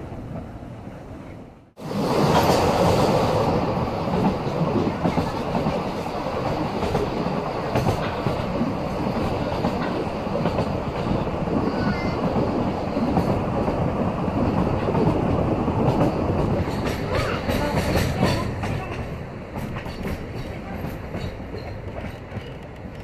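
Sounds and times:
train wheels clattering over rail joints: 0:04.1 - 0:11.3, 0:14.4 - 0:23.0.

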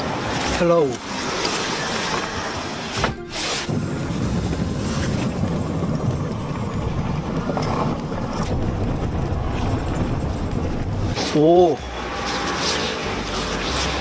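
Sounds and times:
tyres rolling over cobblestones: 0:00.0 - 0:14.0.

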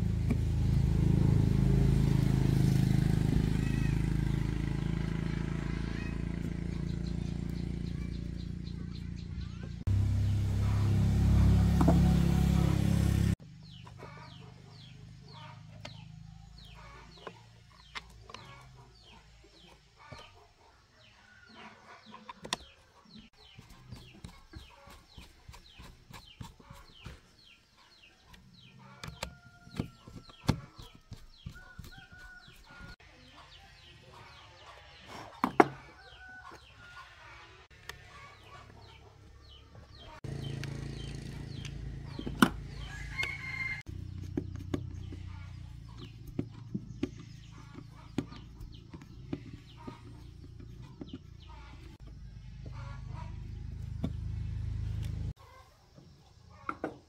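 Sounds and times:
chickens clucking: 0:13.7 - 0:57.0
chicks peeping: 0:38.0 - 0:54.1.

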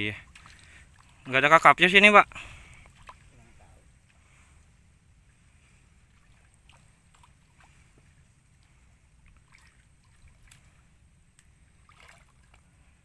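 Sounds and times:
water drips and splashes: 0:00.0 - 0:01.4, 0:02.6 - 0:03.4, 0:06.0 - 0:12.9.

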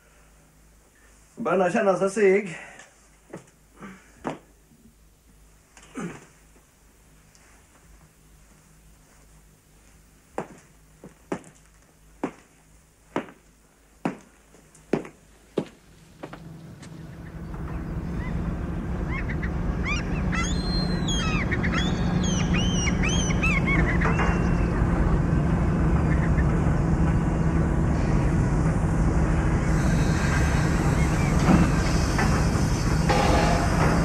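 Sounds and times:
low machinery hum: 0:00.0 - 0:34.0
gliding high-pitched bird calls: 0:17.2 - 0:24.8
hiss and clatter: 0:27.0 - 0:34.0.

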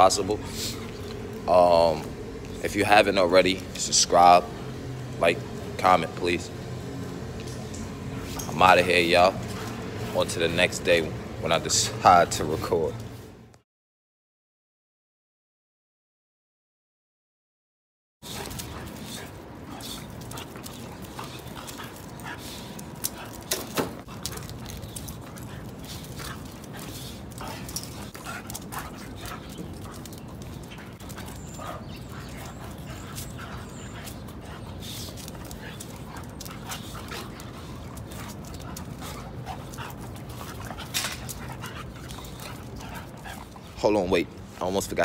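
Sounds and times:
dogs panting: 0:00.0 - 0:13.4, 0:18.2 - 0:45.0
puppies play-fighting vocalizing: 0:06.5 - 0:10.5, 0:18.3 - 0:44.7
dogs scuffling: 0:18.2 - 0:45.0.

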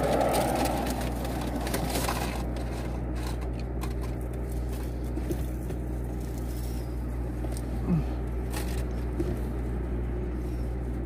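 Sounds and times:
packaging rustling and clicking: 0:00.0 - 0:04.3
car engine idling: 0:00.0 - 0:11.0.

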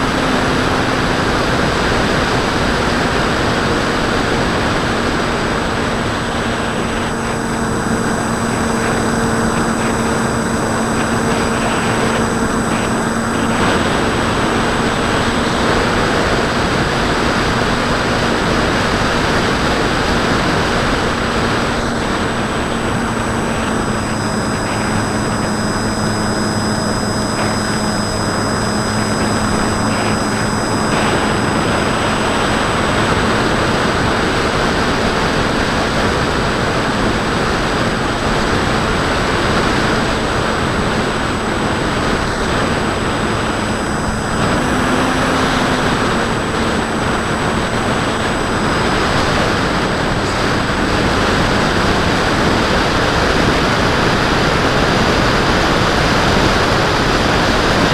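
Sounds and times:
propeller humming: 0:00.0 - 0:57.9.

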